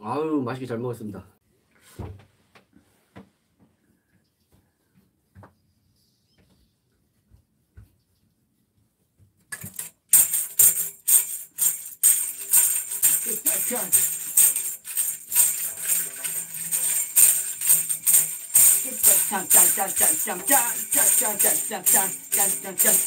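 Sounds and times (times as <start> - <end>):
tambourine jingles: 9.7 - 23.0
backing music with steady beat: 13.9 - 23.0.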